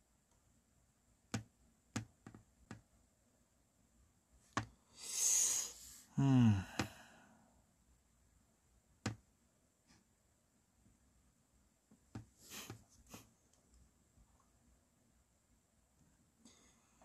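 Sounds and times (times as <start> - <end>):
person sighing: 4.9 - 7.4.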